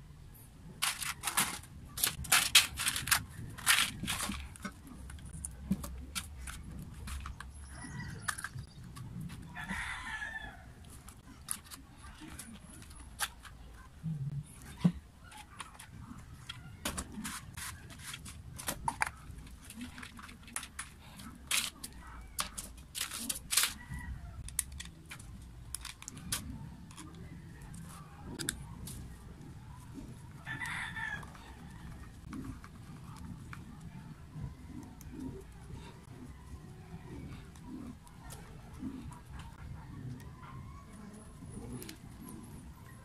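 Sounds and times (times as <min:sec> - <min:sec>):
metal and plastic parts clicking: 0:00.8 - 0:09.3, 0:14.8 - 0:29.0.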